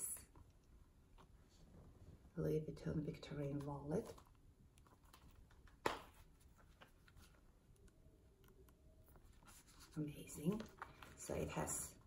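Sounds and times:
wallet clicks and rustles: 0:03.6 - 0:07.5.

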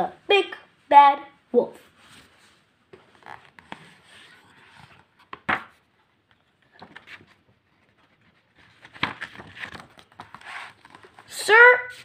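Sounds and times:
paper rustling: 0:02.0 - 0:12.0
book cover turning: 0:02.9 - 0:11.3
book handling taps and rustles: 0:02.9 - 0:11.3.

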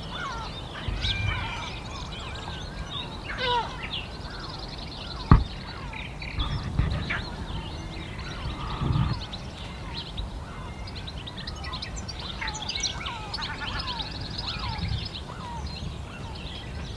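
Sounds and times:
small birds chirping: 0:00.0 - 0:16.9
brief low rumbles: 0:00.8 - 0:03.0
sharp knock: 0:05.3 - 0:05.6.

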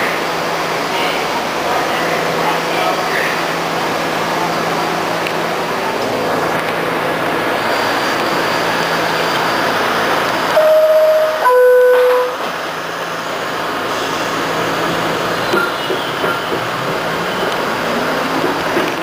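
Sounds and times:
subway car equipment hum: 0:00.0 - 0:19.0
two-note door-closing chime: 0:10.6 - 0:12.4.

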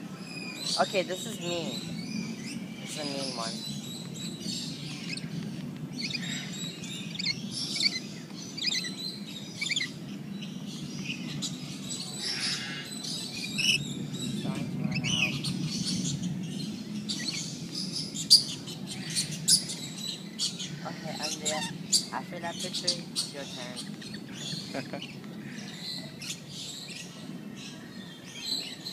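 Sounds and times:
low background hum: 0:00.0 - 0:28.8
birds chirping and squeaking: 0:00.0 - 0:28.9.

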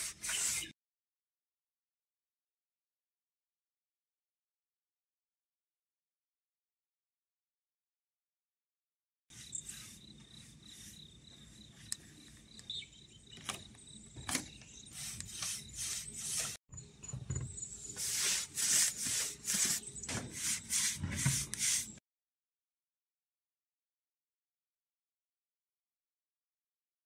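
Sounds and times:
paintbrush strokes on wooden slats: 0:00.0 - 0:00.7, 0:09.3 - 0:12.5, 0:14.9 - 0:16.6, 0:17.9 - 0:22.0
insects trilling: 0:09.3 - 0:14.2.

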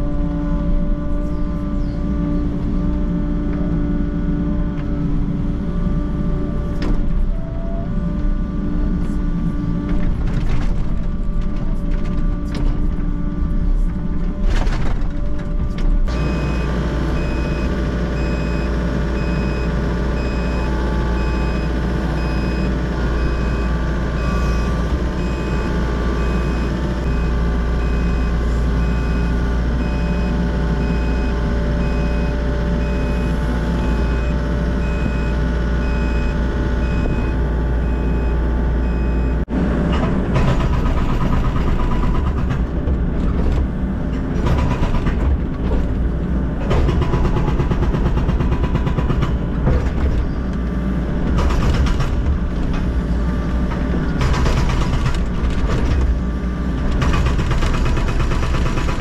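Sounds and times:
excavator engine and hydraulics: 0:00.0 - 0:59.0
warning alarm beeping: 0:16.1 - 0:39.4.

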